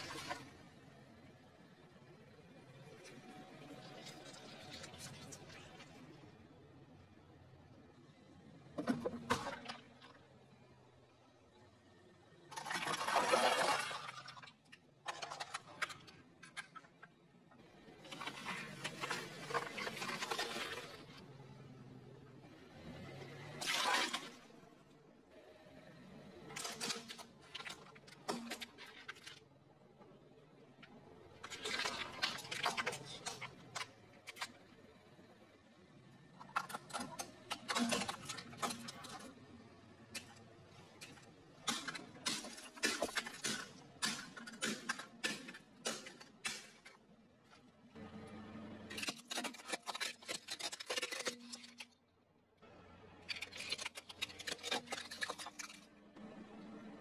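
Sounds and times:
tyre crushing plastic objects: 36.4s - 39.3s, 40.9s - 47.0s, 48.9s - 51.9s, 53.3s - 55.9s.

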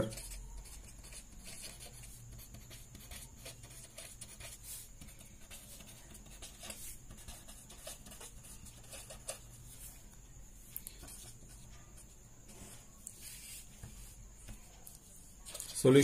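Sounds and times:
pen scratching on paper: 0.0s - 9.9s
faint low hum: 0.0s - 16.0s.

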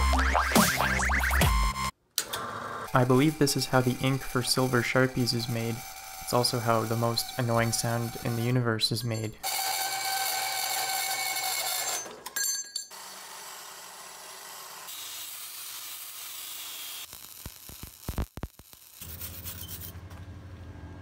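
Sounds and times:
bandsaw cutting steel: 3.0s - 8.6s, 9.2s - 12.2s, 12.9s - 18.0s, 18.6s - 20.0s
wire brush scrubbing steel: 3.0s - 8.6s
angle grinder grinding steel: 3.0s - 12.1s.

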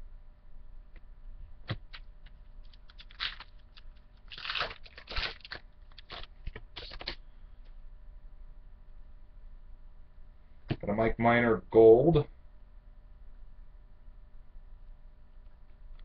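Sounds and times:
foil packs crinkling: 1.7s - 7.2s.

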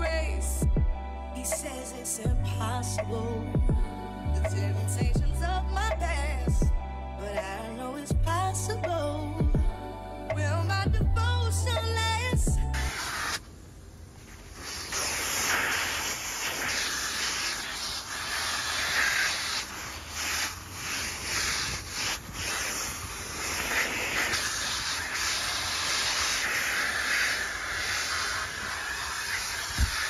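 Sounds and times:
vacuum cleaner suction hiss: 12.7s - 30.0s.

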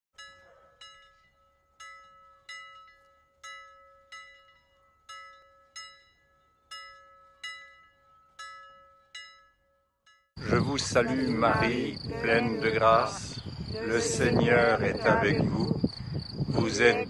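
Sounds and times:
bell ringing: 0.2s - 10.4s.

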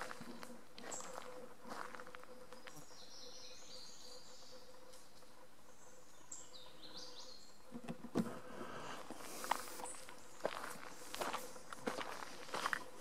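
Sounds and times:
footsteps: 0.0s - 2.8s, 7.8s - 13.0s
birds singing: 0.0s - 8.0s, 8.7s - 13.0s.

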